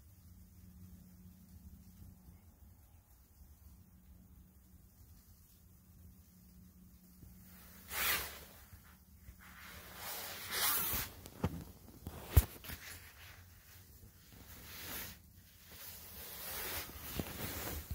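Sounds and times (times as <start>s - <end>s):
clothing rustling: 7.3s - 17.9s.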